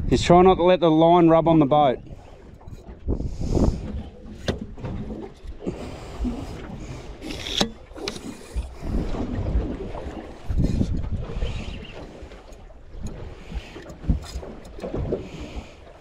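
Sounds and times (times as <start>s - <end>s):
water slapping against boat hull: 1.4s - 16.0s
sharp knocks on boat: 4.3s - 5.4s.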